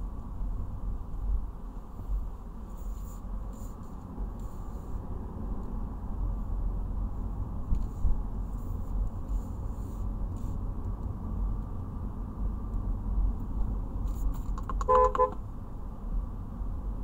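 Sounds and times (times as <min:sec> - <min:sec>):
road and engine rumble in car: 0:00.0 - 0:17.0
car horn double beep: 0:14.8 - 0:15.4.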